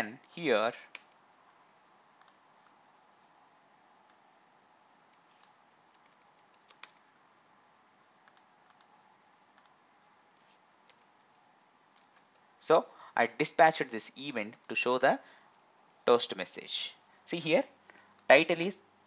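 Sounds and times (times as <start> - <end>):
computer mouse and keyboard clicks: 2.2 - 2.8, 5.1 - 7.1, 8.2 - 9.0, 9.6 - 9.8, 10.4 - 12.5.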